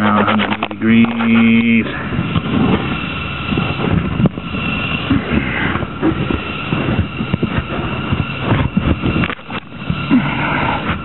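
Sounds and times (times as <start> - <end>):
rubber and steel scraping and knocking: 0.0 - 1.5
faint high hum: 0.0 - 11.0.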